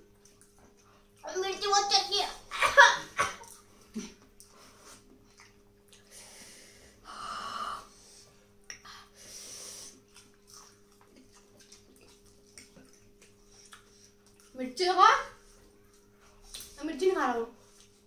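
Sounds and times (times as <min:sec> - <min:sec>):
breathy hissing exhales: 0:06.1 - 0:10.0.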